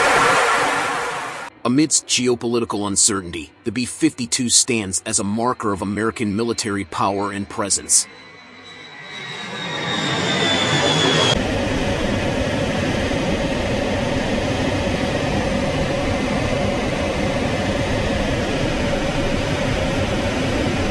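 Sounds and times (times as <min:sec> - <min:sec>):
jet engine whine passing overhead: 0:00.0 - 0:01.5, 0:05.5 - 0:20.9
airflow and engine noise in cockpit: 0:06.4 - 0:20.9.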